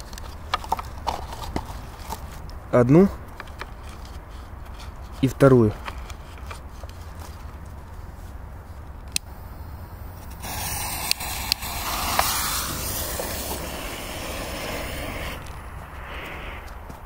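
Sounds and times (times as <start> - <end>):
smoke bomb hissing: 9.4 - 16.8
sharp crackles: 10.2 - 17.0.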